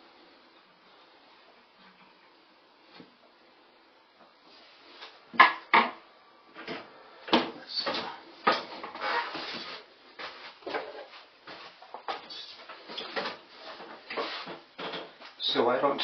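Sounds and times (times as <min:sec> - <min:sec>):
rustling: 0:08.8 - 0:14.7.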